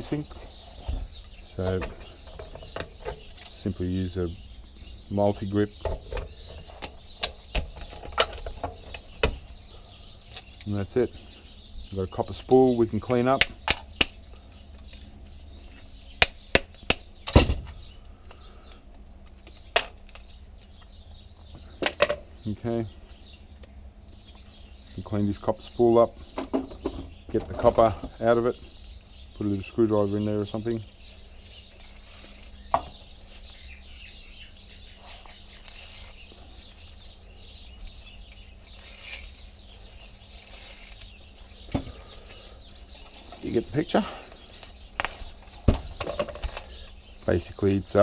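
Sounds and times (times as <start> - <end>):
birds chirping: 0.0 - 48.0
scratchy rustle: 31.8 - 32.6, 34.8 - 37.0, 38.6 - 41.6.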